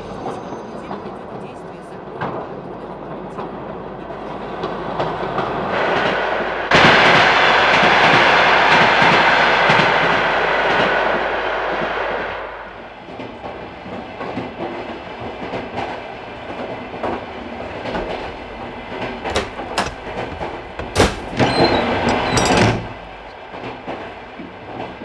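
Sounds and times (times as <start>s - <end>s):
train wheels clacking on rails: 13.0s - 25.0s.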